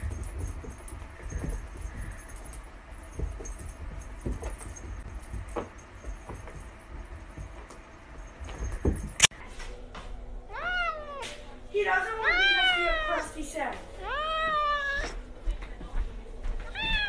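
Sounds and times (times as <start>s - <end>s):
kitten paws thumping on carpet: 14.1s - 17.0s.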